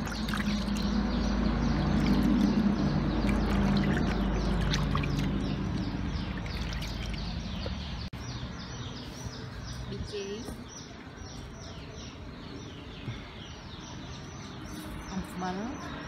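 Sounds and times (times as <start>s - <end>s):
water sloshing in basin: 0.0s - 7.9s
small birds chirping: 0.0s - 16.0s.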